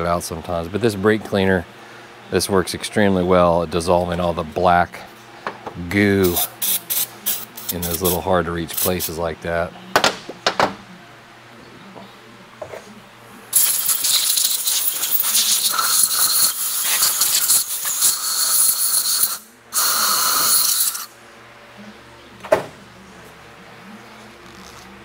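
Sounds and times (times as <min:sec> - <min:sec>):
aerosol spray hissing: 0:06.2 - 0:09.1, 0:13.5 - 0:21.1.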